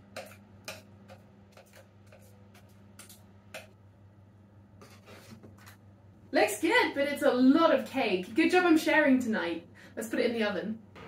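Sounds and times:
spatula scraping and tapping bowl: 0.0 - 3.8, 4.8 - 5.8
faint steady hum: 0.0 - 11.0.

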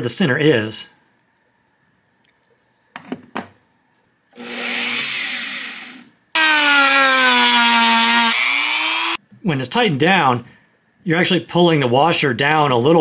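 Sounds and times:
rotary tool motor whine: 4.4 - 9.2.

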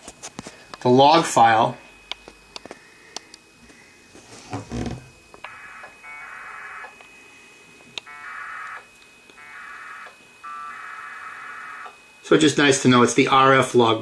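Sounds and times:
warbling two-tone modem bursts: 5.5 - 6.8, 8.1 - 8.8, 9.4 - 12.0.

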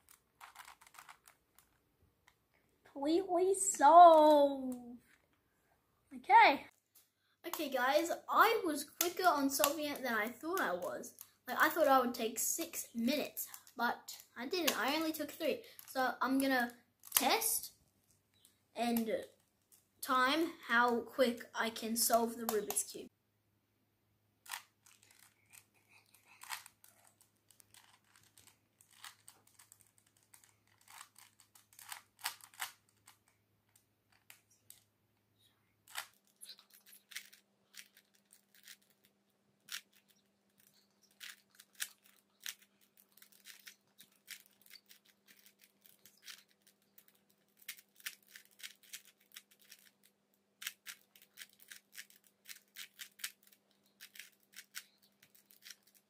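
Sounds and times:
puzzle cube clicking: 0.1 - 1.7, 24.4 - 33.3, 39.7 - 56.0.

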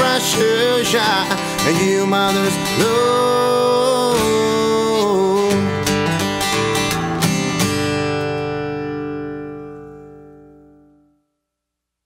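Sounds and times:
acoustic guitar strumming: 0.0 - 11.6.

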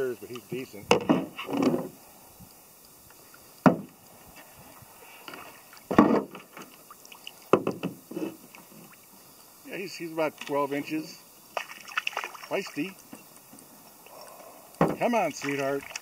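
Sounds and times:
knocks on canoe hull: 3.6 - 3.9, 5.9 - 6.4, 7.5 - 8.0, 14.8 - 15.1
small water splashes: 4.6 - 7.6, 11.4 - 13.2, 15.0 - 16.0.

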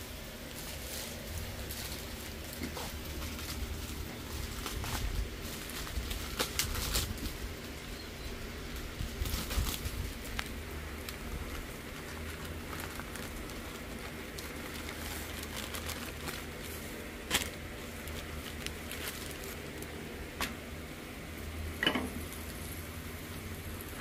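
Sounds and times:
plastic bag rustling: 0.1 - 7.8, 8.6 - 20.6.

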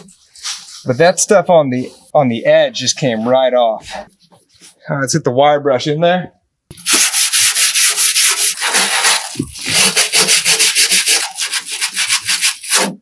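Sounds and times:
wire brush scrubbing steel: 6.8 - 13.0.

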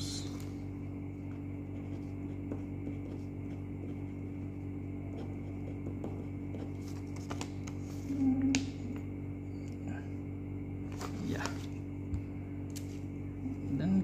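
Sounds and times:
short low hum: 0.0 - 14.0
steady low hum: 0.0 - 14.0
pen scratching on paper: 1.3 - 6.8
paper rustling: 6.6 - 8.1.

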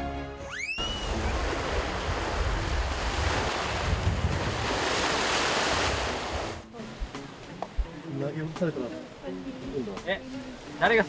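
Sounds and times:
wind buffeting microphone: 1.0 - 6.6
sea waves washing onto beach: 1.0 - 11.0.

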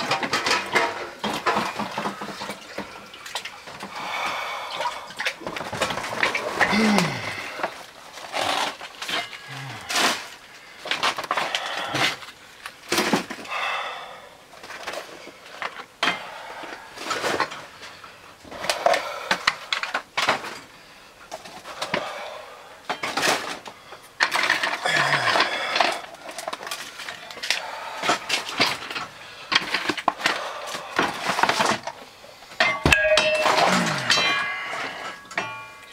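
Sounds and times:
person breathing heavily: 3.7 - 5.3, 6.6 - 8.0, 9.2 - 12.7, 13.4 - 14.6, 16.0 - 19.8, 20.7 - 22.9, 23.6 - 32.6, 33.6 - 35.6.

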